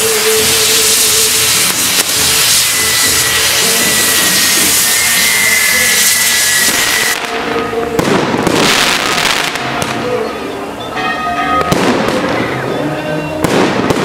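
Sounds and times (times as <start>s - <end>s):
firework hissing and whistling: 0.0s - 10.1s
firework bangs: 0.0s - 10.2s, 11.4s - 12.8s, 13.4s - 14.0s.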